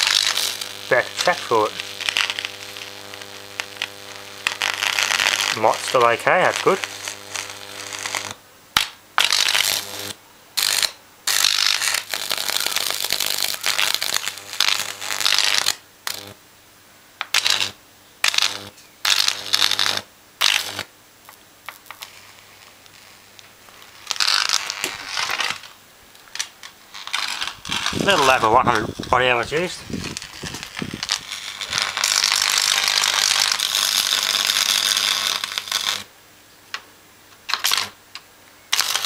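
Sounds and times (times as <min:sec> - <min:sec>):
transformer mains hum: 0:00.0 - 0:11.2, 0:11.8 - 0:33.6
electric arc crackling and buzzing: 0:00.0 - 0:16.4, 0:17.2 - 0:36.2, 0:37.4 - 0:38.0, 0:38.7 - 0:39.0.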